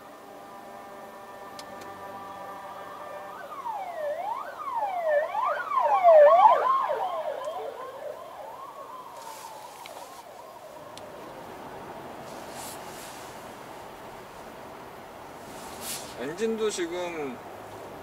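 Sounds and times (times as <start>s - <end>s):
emergency vehicle siren wailing: 0.0s - 11.6s.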